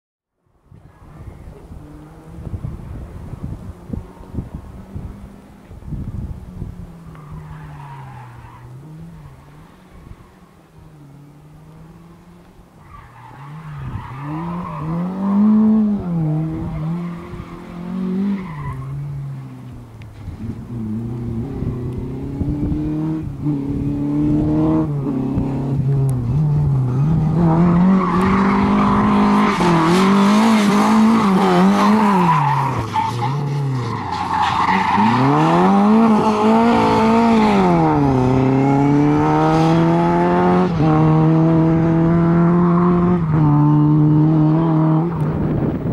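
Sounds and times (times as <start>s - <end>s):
rally car engine revving: 11.0s - 45.9s.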